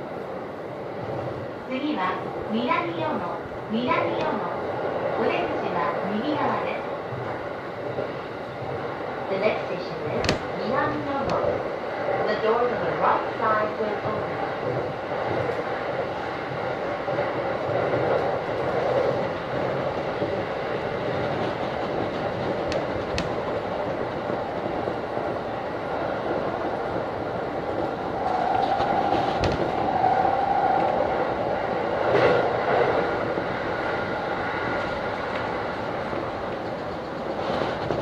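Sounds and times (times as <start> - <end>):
train rolling noise: 0.0 - 38.0
wheel and rail clicks: 21.1 - 24.9.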